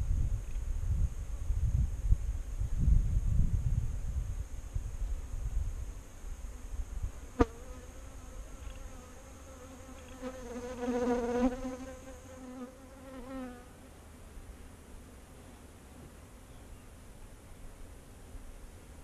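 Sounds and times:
wind rumbling on microphone: 0.0s - 7.3s
bees buzzing: 7.2s - 13.7s.

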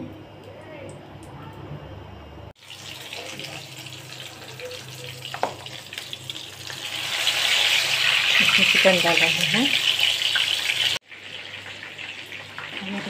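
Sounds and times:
oil sizzling in frying pan: 2.6s - 13.0s.

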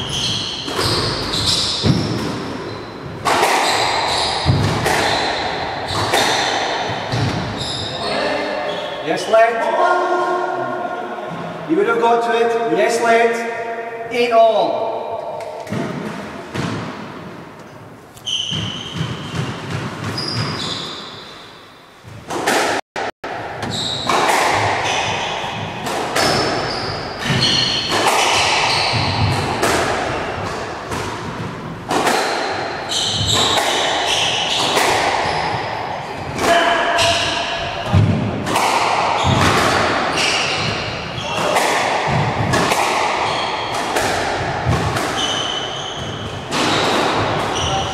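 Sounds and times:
squash ball hitting rackets: 0.0s - 7.6s, 15.4s - 17.4s, 18.2s - 21.0s, 22.3s - 47.9s
sneakers squeaking on wooden floor: 0.0s - 9.1s, 17.6s - 22.3s, 23.6s - 47.9s.

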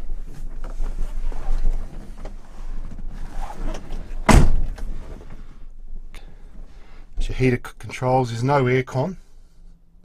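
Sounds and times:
rustling and shuffling: 0.0s - 7.2s
vehicle door slamming: 3.7s - 5.3s.

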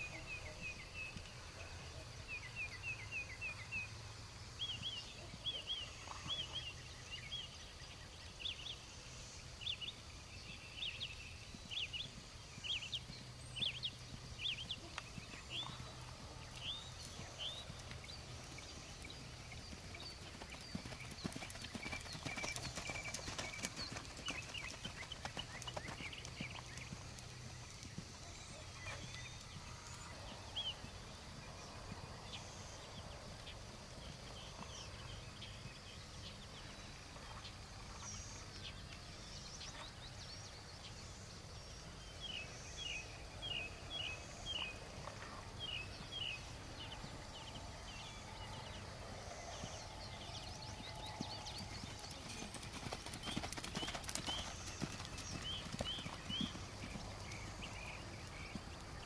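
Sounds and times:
pony hoofbeats cantering on sand: 10.4s - 32.4s, 45.9s - 59.0s.

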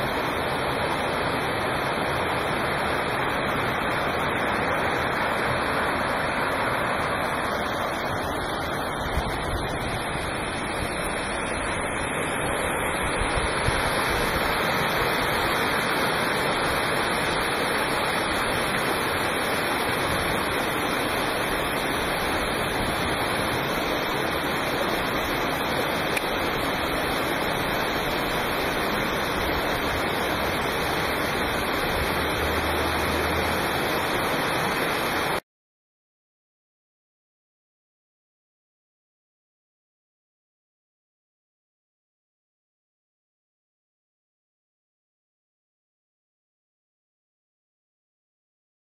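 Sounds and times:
stream flowing: 0.0s - 35.4s
waterfall pouring onto rocks: 9.2s - 35.4s.

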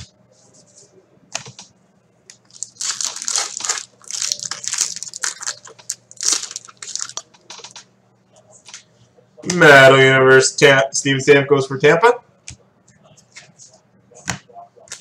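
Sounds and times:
foil wrapper crinkling and tearing: 2.5s - 7.3s.

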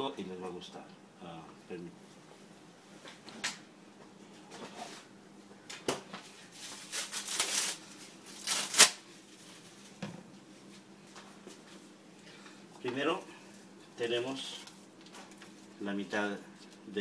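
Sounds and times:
rustling and scraping handling noises: 4.3s - 5.2s, 6.1s - 16.9s.

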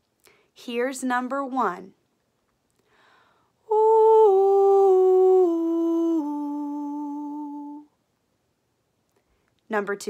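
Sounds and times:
woman singing descending notes: 3.7s - 7.9s.

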